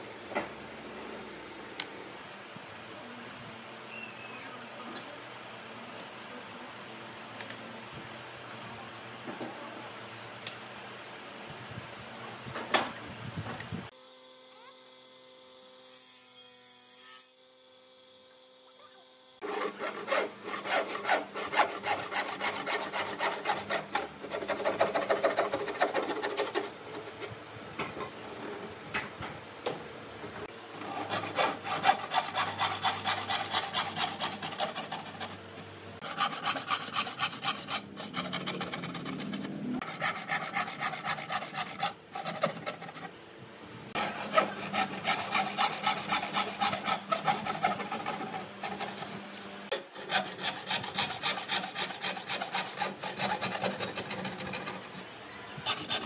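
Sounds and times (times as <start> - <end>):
hand saw cutting wood: 19.4 - 27.3, 30.8 - 35.4, 36.0 - 43.1, 43.9 - 55.0, 55.6 - 56.0.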